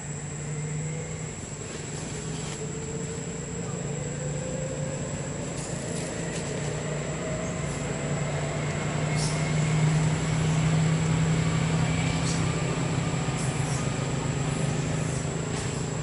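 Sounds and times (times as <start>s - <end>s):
low engine drone: 0.0s - 16.0s.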